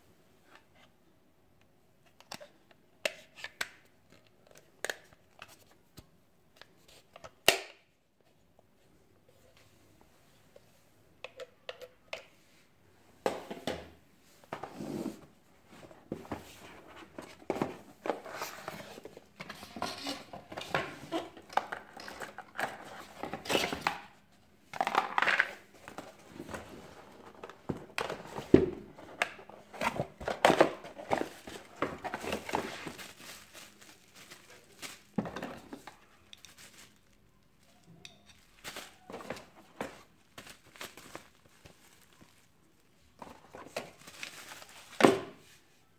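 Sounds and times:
cardboard packaging rustling: 25.7 - 45.6.

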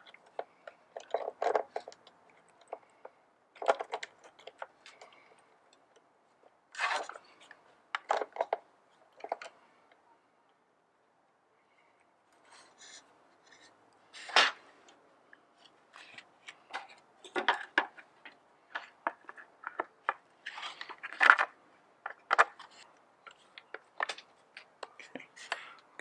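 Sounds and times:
chainsaw parts clicking and rattling: 0.0 - 6.0, 15.9 - 25.7.

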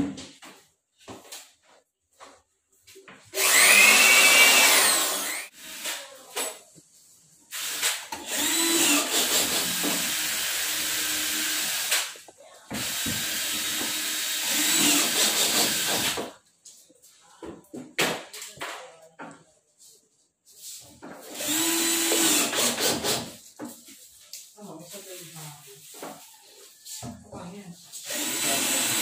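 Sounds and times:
cordless drill whining: 3.3 - 6.0, 7.5 - 12.2, 12.8 - 16.2, 21.3 - 23.3, 28.0 - 29.0.

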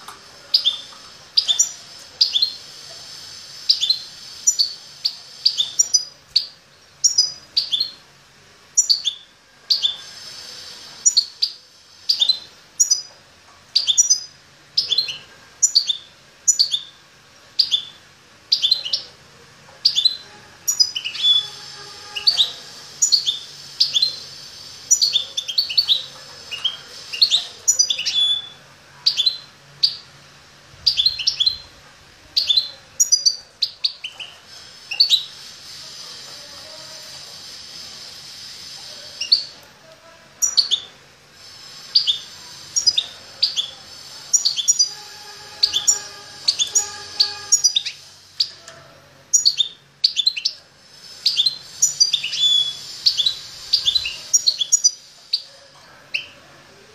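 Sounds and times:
songbird chirping: 0.0 - 8.1, 41.9 - 56.5.

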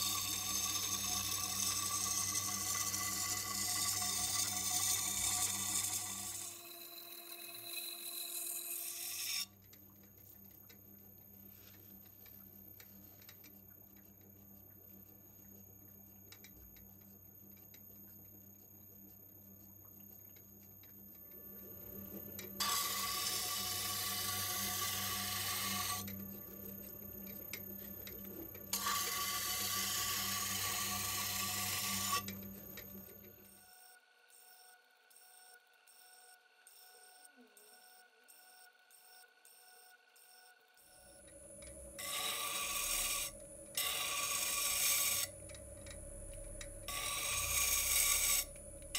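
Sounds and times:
grinding wheel motor hum: 0.0 - 9.5, 20.3 - 33.5, 41.1 - 48.9
knife blade grinding hiss: 22.6 - 26.1, 28.8 - 32.3, 42.0 - 45.3, 46.9 - 48.5.

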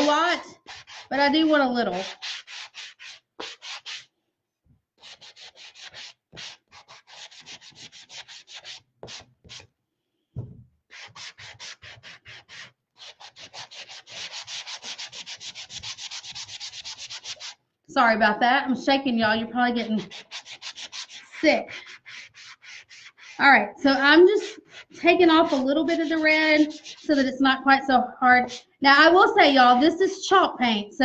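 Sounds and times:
sanding block scraping wood: 0.0 - 4.1, 5.0 - 9.6, 10.9 - 17.6, 19.9 - 23.4, 24.3 - 27.3.

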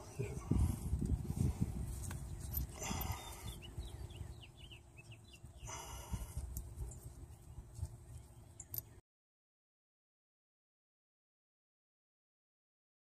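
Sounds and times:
small birds chirping: 1.4 - 9.0.

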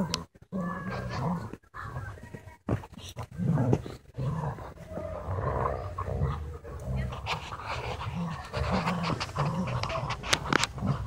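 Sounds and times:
dogs growling playfully: 0.0 - 1.6, 3.2 - 11.0
dogs panting: 3.8 - 11.0.

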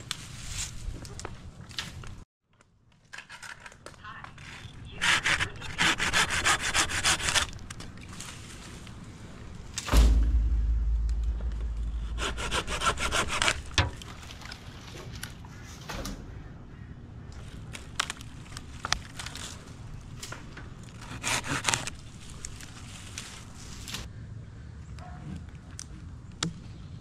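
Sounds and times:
handsaw cutting branches: 5.0 - 7.6, 12.0 - 13.8, 21.0 - 21.9
low rumble: 9.3 - 14.3
loud low thump: 9.8 - 13.9.

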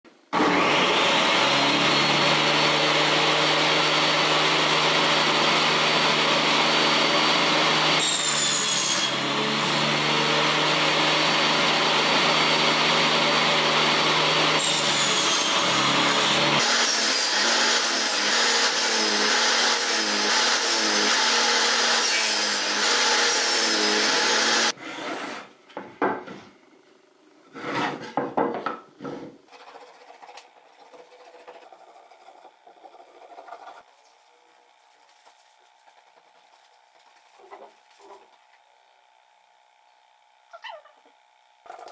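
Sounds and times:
table saw cutting boards: 0.3 - 26.5, 27.5 - 33.9
wooden boards knocking: 28.1 - 28.9.

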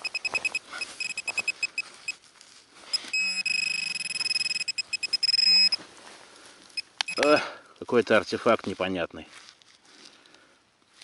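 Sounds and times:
metal detector beeping: 0.0 - 2.2, 2.8 - 5.8, 6.7 - 7.5
gloved hand rustling in soil: 0.0 - 4.0, 8.7 - 11.0.

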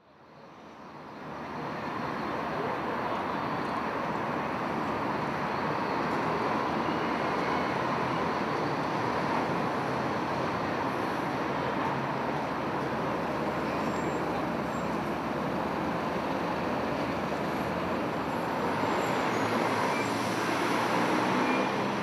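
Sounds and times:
road vehicle noise: 0.1 - 22.0.

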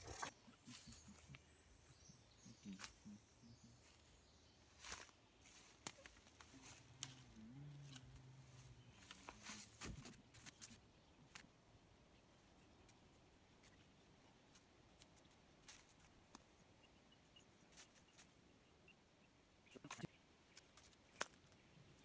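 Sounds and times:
footsteps in undergrowth: 3.8 - 11.4, 14.5 - 16.4
wooden pole being handled: 4.8 - 11.5.

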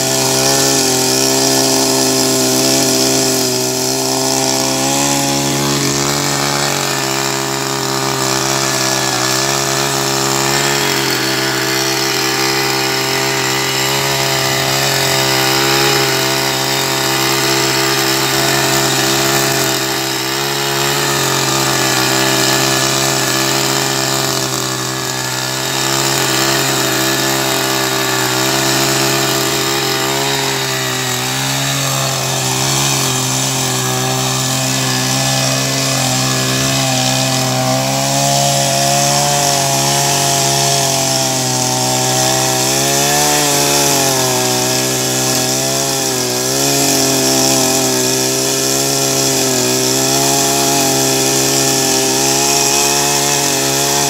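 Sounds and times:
petrol tiller engine running: 0.0 - 54.0.

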